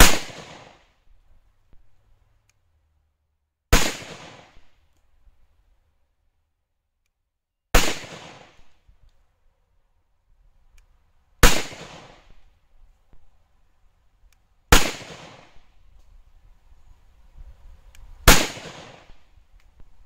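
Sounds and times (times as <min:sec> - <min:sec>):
pistol shots with echo: 0:00.0 - 0:00.8, 0:03.7 - 0:04.6, 0:07.8 - 0:08.7, 0:11.4 - 0:12.4, 0:14.7 - 0:15.7, 0:18.3 - 0:19.3.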